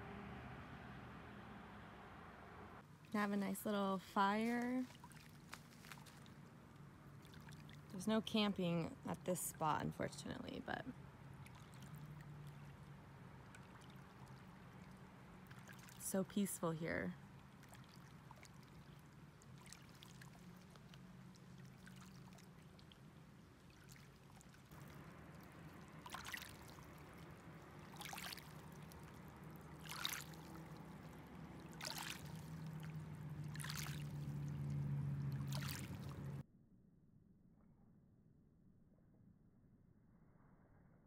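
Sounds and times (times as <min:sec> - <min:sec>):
soft water splash: 0:02.8 - 0:36.4
waves lapping on pebbles: 0:02.9 - 0:08.1, 0:11.3 - 0:36.4.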